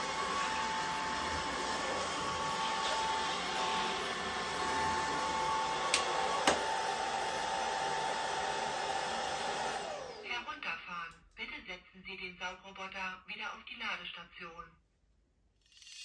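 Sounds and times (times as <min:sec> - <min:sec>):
vacuum mop motor hum and whine: 0:00.0 - 0:10.5.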